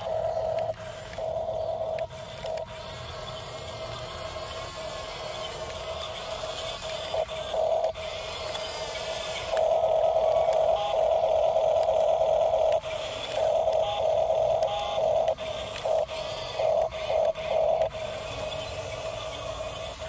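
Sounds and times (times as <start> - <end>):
toy motors whining: 0.0 - 20.0.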